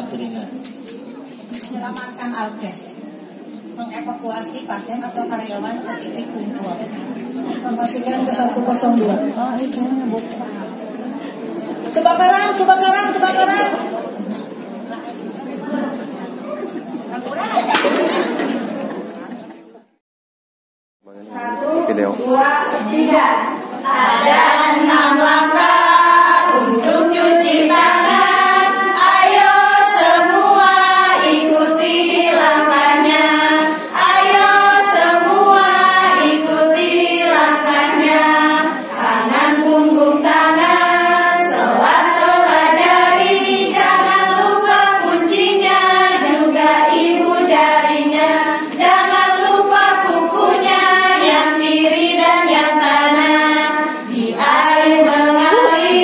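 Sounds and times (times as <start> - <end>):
women singing in unison: 21.4 - 56.0.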